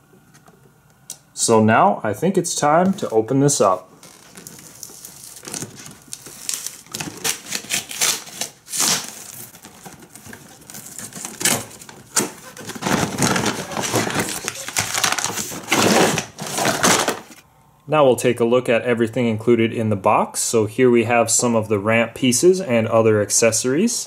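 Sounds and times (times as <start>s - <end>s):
cardboard scraping: 2.8s - 17.4s
cardboard box tearing: 4.2s - 17.4s
plastic parts clicking and rustling: 9.5s - 17.4s.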